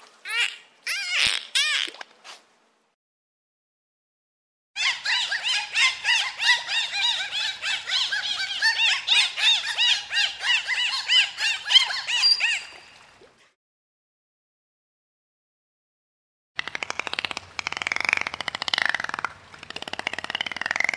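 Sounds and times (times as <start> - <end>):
dolphins whistling: 4.8 - 13.1, 16.8 - 20.9.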